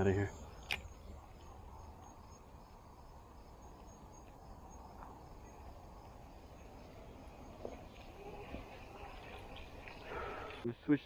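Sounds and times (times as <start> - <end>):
insects chirping: 0.0 - 11.0.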